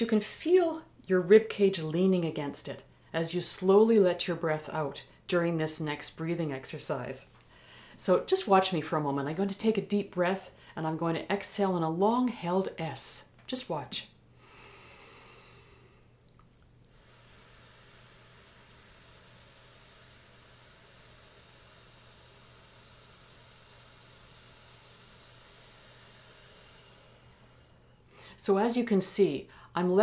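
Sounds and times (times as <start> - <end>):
woman breathing in: 7.4 - 8.0, 14.4 - 16.2, 16.9 - 28.4, 29.5 - 29.7
long held hiss exhalation: 14.4 - 16.1, 16.9 - 28.5.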